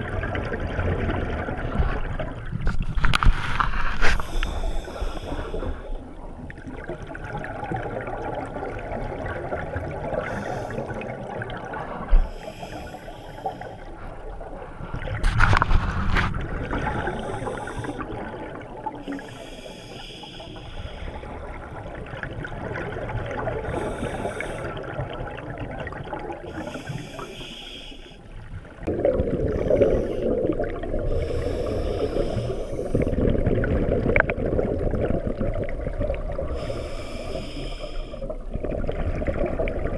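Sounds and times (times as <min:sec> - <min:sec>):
diver breathing through regulator: 0:03.5 - 0:06.0, 0:10.2 - 0:11.1, 0:12.1 - 0:14.3, 0:16.8 - 0:18.2, 0:19.0 - 0:21.4, 0:23.6 - 0:24.8, 0:26.5 - 0:28.2, 0:29.4 - 0:33.3, 0:36.4 - 0:38.3
bubbling exhalations underwater: 0:28.8 - 0:36.7, 0:38.3 - 0:39.9.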